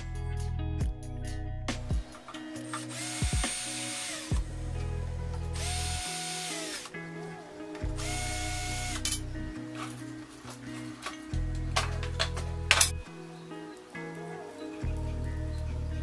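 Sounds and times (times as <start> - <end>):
background music: 0.0 - 16.0
cordless drill whine: 2.8 - 4.5, 5.6 - 6.9, 8.0 - 9.1.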